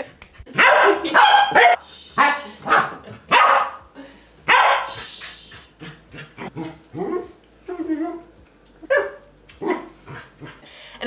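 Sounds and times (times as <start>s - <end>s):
dog barking: 0.6s - 3.8s, 4.5s - 5.3s, 8.9s - 9.9s.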